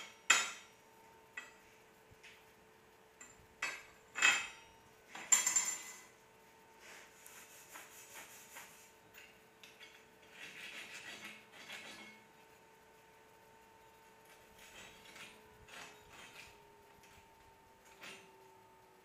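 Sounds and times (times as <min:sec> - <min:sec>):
metal scraping and tapping: 0:00.0 - 0:01.7, 0:03.2 - 0:06.2, 0:08.5 - 0:12.4, 0:14.2 - 0:18.4
steel tools clanking: 0:03.2 - 0:06.1.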